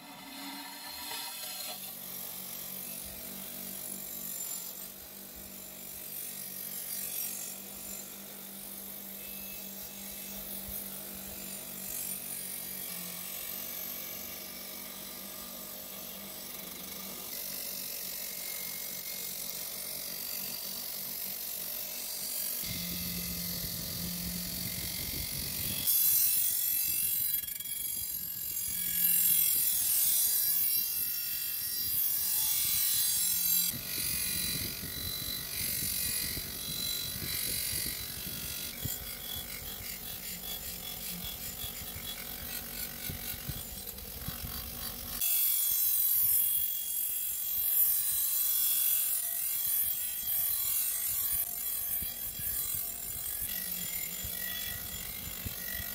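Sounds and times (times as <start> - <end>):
electric motor humming: 0.0 - 45.2, 49.1 - 55.9
wire wheel scrubbing steel: 22.1 - 45.3.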